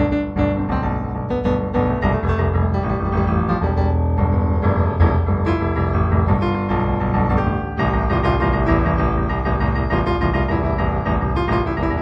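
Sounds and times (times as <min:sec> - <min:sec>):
solo piano music: 0:00.0 - 0:12.0.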